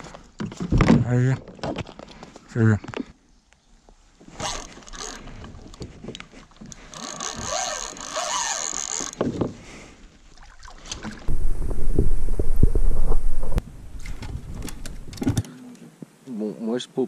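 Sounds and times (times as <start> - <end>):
water moving: 4.2 - 15.2.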